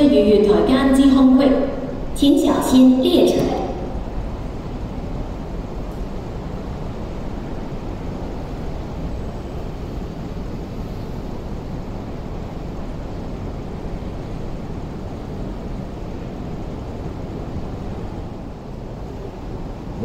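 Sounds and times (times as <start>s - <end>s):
railway platform background noise: 0.0s - 20.0s.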